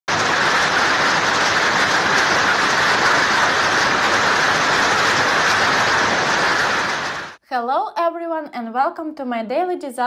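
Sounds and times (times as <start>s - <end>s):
downpour pounding the ground: 0.1s - 7.4s
wind roaring: 0.1s - 7.4s.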